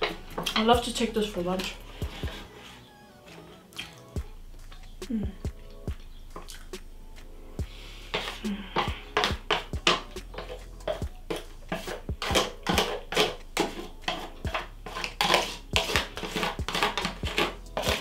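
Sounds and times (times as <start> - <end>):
metal spoon scraping foil tray: 0.0 - 3.5, 7.7 - 18.0
foil crinkling: 10.2 - 18.0.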